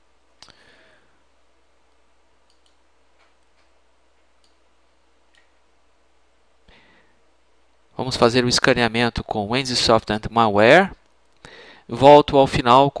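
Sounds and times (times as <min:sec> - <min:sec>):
computer mouse clicks: 0:02.4 - 0:03.7, 0:04.4 - 0:04.6.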